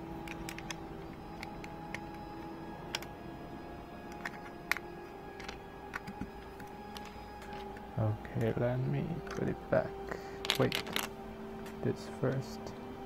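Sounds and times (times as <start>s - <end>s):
faint steady hum: 0.0s - 13.0s
plastic bricks clicking: 0.2s - 0.8s, 4.1s - 7.6s, 10.4s - 11.1s.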